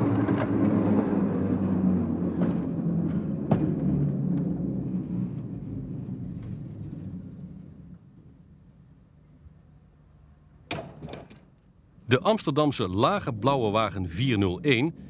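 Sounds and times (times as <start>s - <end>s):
electric tram passing: 0.0s - 10.4s.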